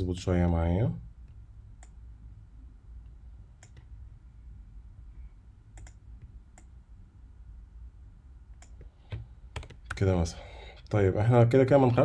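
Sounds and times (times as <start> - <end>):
low steady hum: 0.0 - 12.0
sharp computer clicks: 1.8 - 2.0, 3.6 - 3.9, 5.7 - 6.8.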